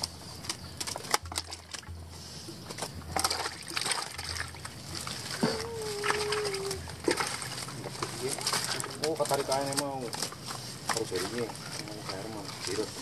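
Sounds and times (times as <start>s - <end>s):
wet mud squelching and splashing: 1.0s - 13.0s.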